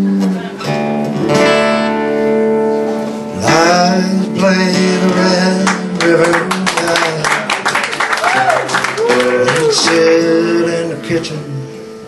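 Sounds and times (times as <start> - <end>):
man singing: 0.0 - 0.5, 3.3 - 7.8, 8.9 - 12.0
acoustic guitar chords: 0.0 - 12.0.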